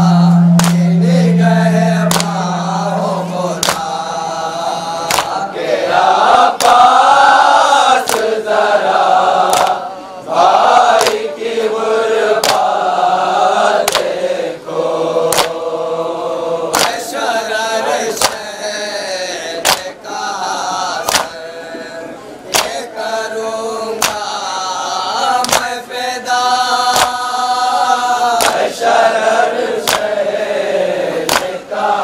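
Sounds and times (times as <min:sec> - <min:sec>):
lead reciter at a microphone: 0:00.0 - 0:32.0
men chanting in chorus: 0:00.0 - 0:32.0
hands slapping chests: 0:00.6 - 0:00.9, 0:02.1 - 0:02.4, 0:03.6 - 0:03.9, 0:05.1 - 0:05.4, 0:06.6 - 0:06.8, 0:08.0 - 0:08.3, 0:09.5 - 0:09.8, 0:11.0 - 0:11.2, 0:12.4 - 0:12.7, 0:13.8 - 0:14.1, 0:15.3 - 0:15.6, 0:16.7 - 0:17.0, 0:18.2 - 0:18.4, 0:19.6 - 0:19.9, 0:21.0 - 0:21.4, 0:22.5 - 0:22.9, 0:24.0 - 0:24.3, 0:25.4 - 0:25.8, 0:26.9 - 0:27.2, 0:28.4 - 0:28.7, 0:29.8 - 0:30.1, 0:31.3 - 0:31.6.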